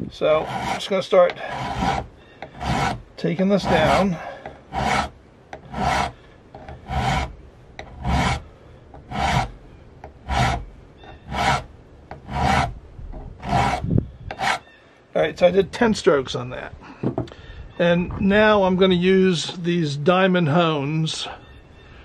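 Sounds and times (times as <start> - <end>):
hand file rasping on metal: 0.2 - 8.4, 9.0 - 12.8, 13.4 - 14.6.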